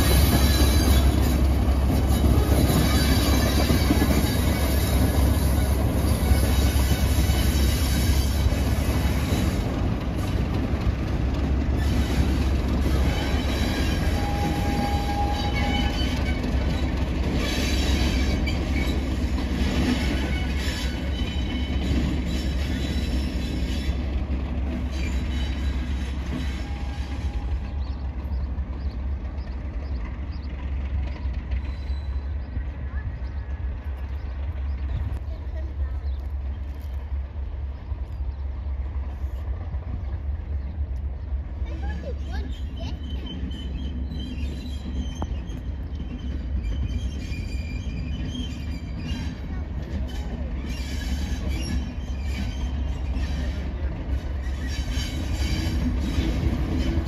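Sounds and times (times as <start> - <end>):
high-pitched wheel squeal: 0.0 - 8.5, 11.8 - 24.0
train rumbling on track: 0.0 - 57.0.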